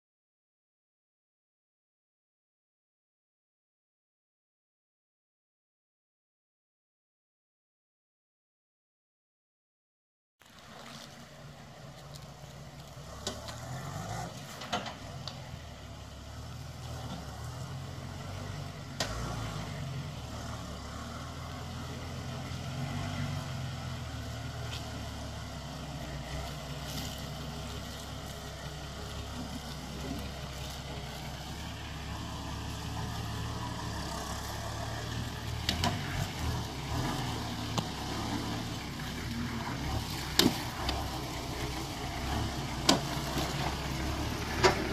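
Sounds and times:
engine running at low revs: 10.4s - 44.9s
knocks and clunks: 14.5s - 15.4s, 40.2s - 41.1s, 42.7s - 43.8s, 44.4s - 44.9s.

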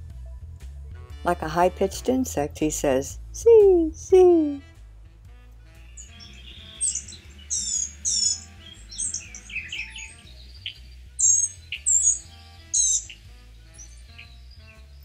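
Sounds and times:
bird high buzzy calls: 5.8s - 15.0s.

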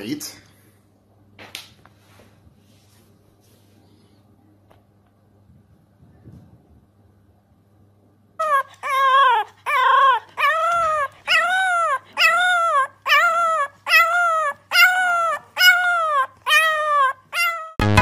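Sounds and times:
puppy howling: 8.4s - 17.8s.

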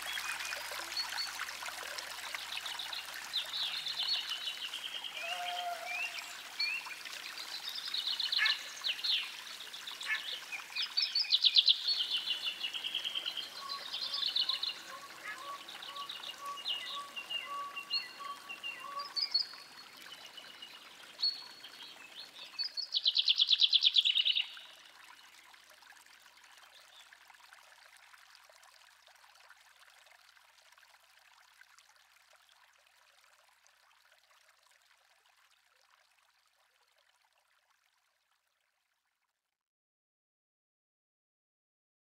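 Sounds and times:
trickle of running water: 0.0s - 39.4s.

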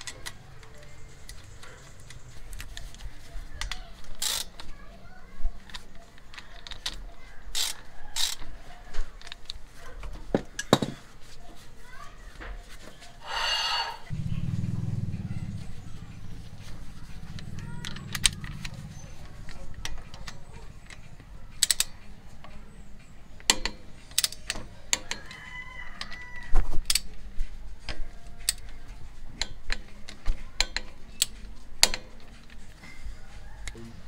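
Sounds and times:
socket ratchet clicking: 4.1s - 4.6s, 6.6s - 8.4s, 17.4s - 22.0s
rooster crowing: 25.0s - 26.6s.

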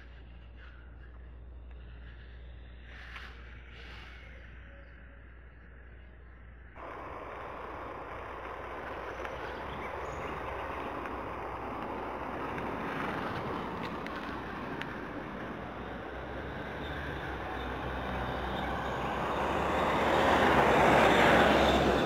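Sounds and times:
road and wind noise in car: 4.4s - 22.0s.

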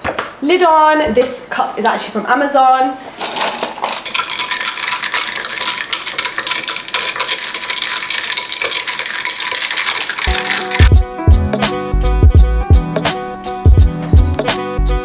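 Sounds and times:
ice cubes rattling in glass cup: 3.2s - 11.0s.

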